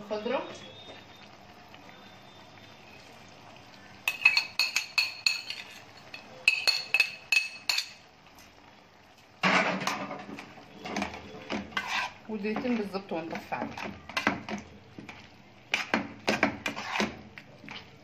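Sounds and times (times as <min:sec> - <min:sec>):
stirring in pan: 0:00.0 - 0:18.0
spoon tapping metal pan: 0:04.0 - 0:08.0.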